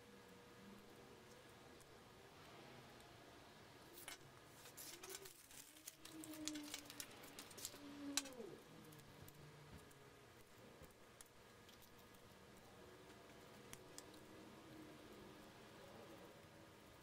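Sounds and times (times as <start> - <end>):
faint low humming tones: 0.0 - 17.0
plastic package crinkling: 4.0 - 8.3.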